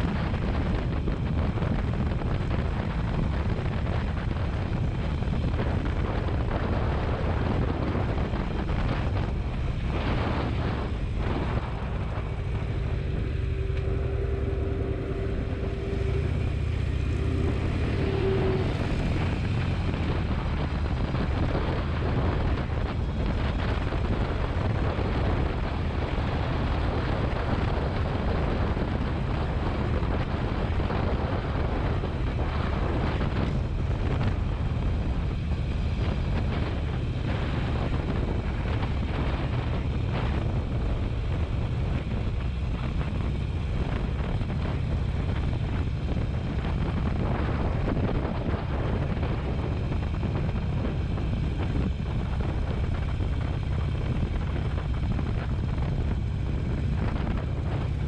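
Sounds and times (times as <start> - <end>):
motorcycle engine running: 0.0 - 58.0
wind on microphone: 0.0 - 58.0
steady tone: 10.4 - 20.4.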